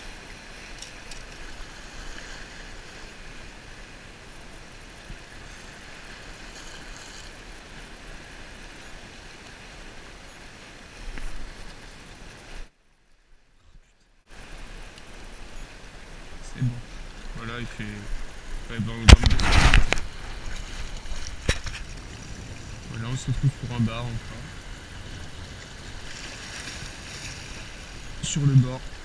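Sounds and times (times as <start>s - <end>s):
wind on microphone: 18.0s - 29.0s
waves washing against rocks: 18.6s - 29.0s.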